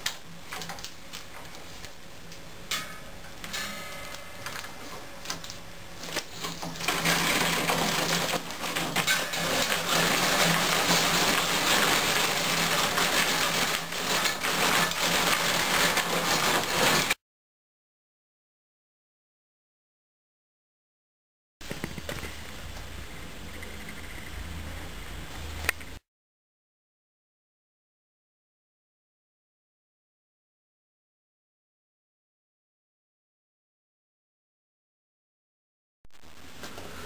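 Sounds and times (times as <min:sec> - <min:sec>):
thread binding machine whirring: 0:04.4 - 0:17.2
faint hum: 0:21.9 - 0:26.0.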